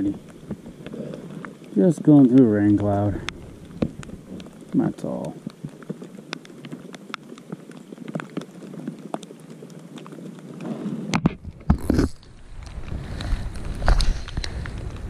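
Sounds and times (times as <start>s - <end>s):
raindrops tapping: 0.0s - 15.0s
clothing rustling on microphone: 5.4s - 15.0s.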